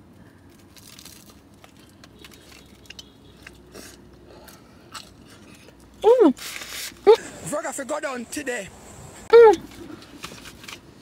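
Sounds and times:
chewing and biting pastry: 0.1 - 6.0
small pastry crunches: 0.3 - 5.9.

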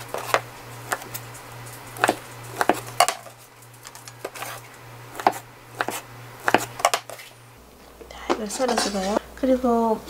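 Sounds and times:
knife chopping on wooden board: 2.0 - 3.3, 4.2 - 7.2.

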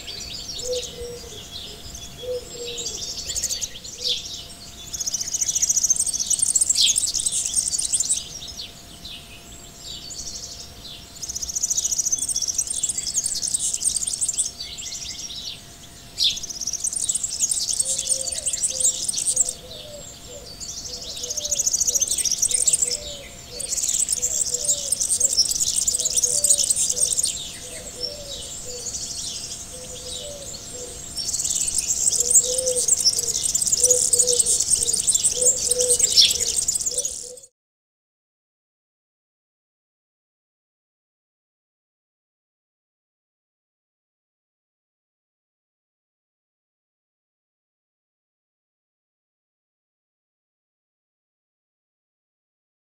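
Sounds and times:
birds chirping and trilling: 0.0 - 37.5
short low bird calls: 29.7 - 37.5.

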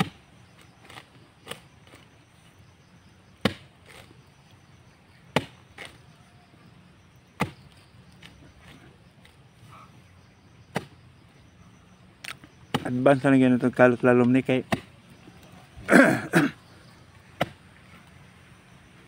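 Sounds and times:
digging tool striking ground: 0.0 - 2.1, 3.4 - 4.2, 5.3 - 6.2, 7.4 - 9.4, 10.7 - 11.0, 12.2 - 13.2, 14.1 - 15.0, 17.3 - 17.7.

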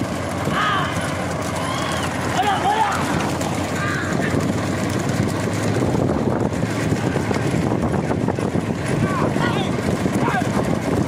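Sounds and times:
vehicle engines running: 0.0 - 11.0
wind on microphone: 3.5 - 11.0.

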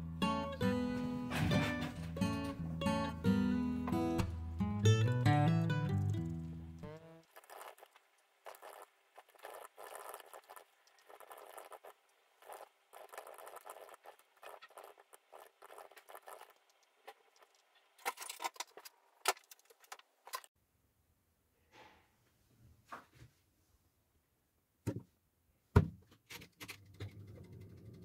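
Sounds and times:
small objects rustling and clicking: 7.2 - 20.5.

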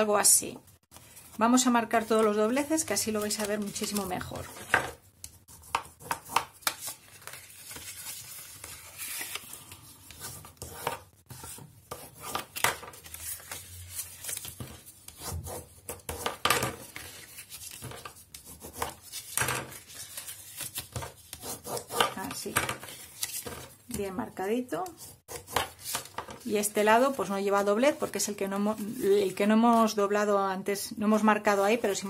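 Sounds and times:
cardstock being folded and creased: 2.0 - 4.8, 6.4 - 10.2, 12.3 - 15.2, 16.8 - 23.8.

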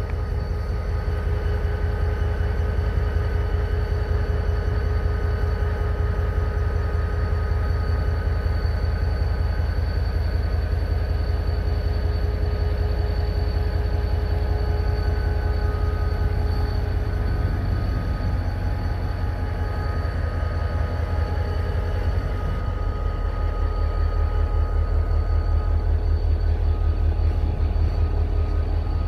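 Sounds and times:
locomotives idling rumble: 0.0 - 29.0
humming tones: 12.3 - 29.0.

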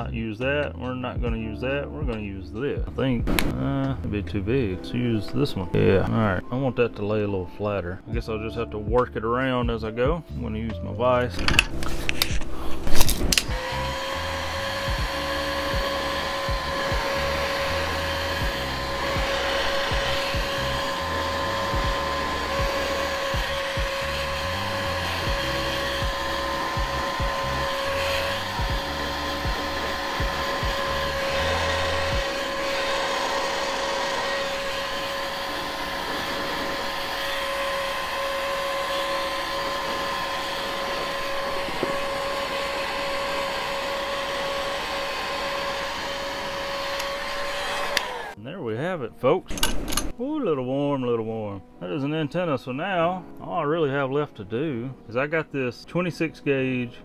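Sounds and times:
heat gun fan whine: 11.4 - 48.4
hot air rushing: 11.8 - 48.4.

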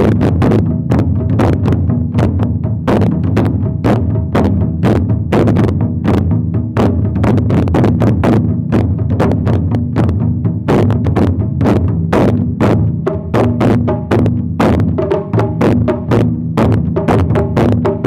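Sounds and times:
large drums struck with sticks: 0.0 - 18.0
small drum sharp strikes: 0.0 - 18.0.

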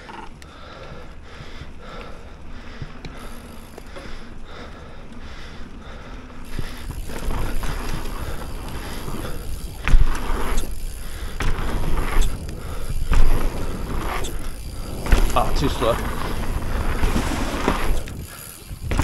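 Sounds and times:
bike tyres and rattle on dirt: 0.0 - 19.0
heavy thumps: 9.0 - 19.0.

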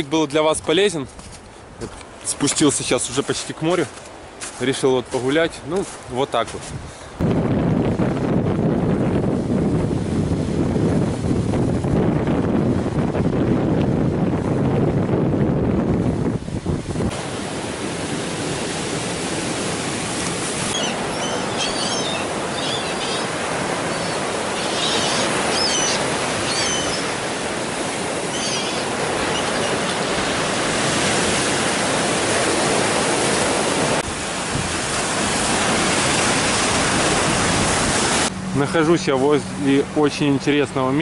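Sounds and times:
storm waves breaking: 0.0 - 41.0
gulls calling: 20.6 - 31.0.

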